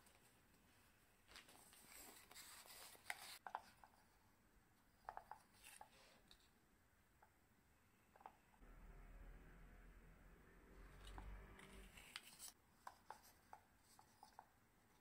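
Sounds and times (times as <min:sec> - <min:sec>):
fabric and paper rustling: 0:00.0 - 0:04.1, 0:11.0 - 0:14.5.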